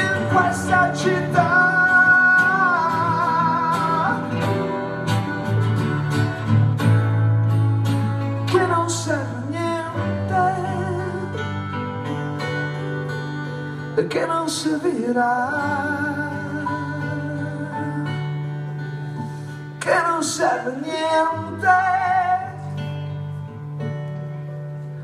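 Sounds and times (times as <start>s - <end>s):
man singing with vibrato: 0.0s - 5.1s, 8.4s - 11.8s, 13.8s - 18.8s, 19.7s - 22.9s
acoustic guitar: 0.0s - 25.0s.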